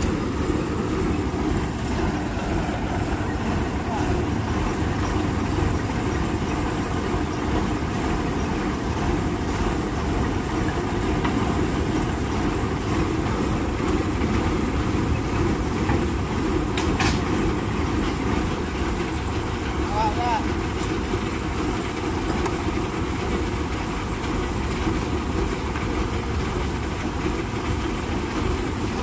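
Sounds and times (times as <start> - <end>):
heavy truck engine rumbling: 0.0 - 29.0.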